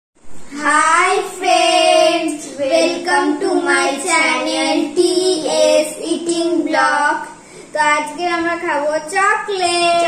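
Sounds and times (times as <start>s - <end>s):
girls singing together: 0.5s - 7.4s.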